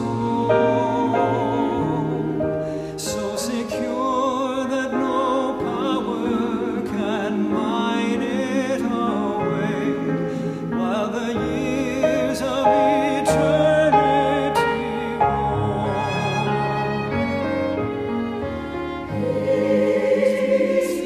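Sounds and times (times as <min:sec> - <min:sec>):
choir singing: 0:00.0 - 0:21.0
piano accompaniment: 0:00.0 - 0:21.0
violin: 0:00.0 - 0:21.0.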